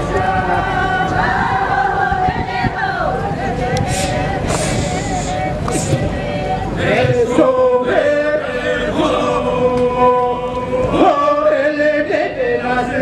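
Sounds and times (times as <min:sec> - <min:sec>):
group chanting in held notes: 0:00.0 - 0:13.0.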